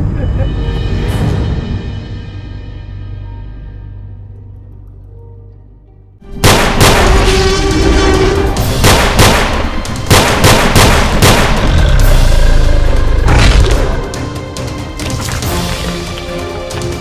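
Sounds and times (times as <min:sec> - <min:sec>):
film music: 0:00.0 - 0:17.0
heavy blasts or impacts: 0:06.4 - 0:14.1.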